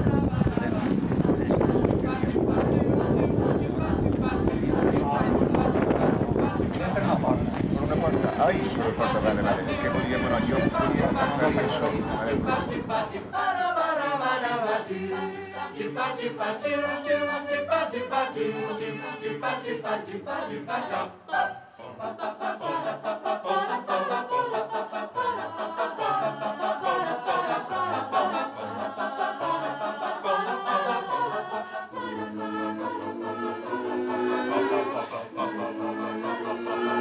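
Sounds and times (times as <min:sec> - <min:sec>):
group of voices singing: 0:00.0 - 0:37.0.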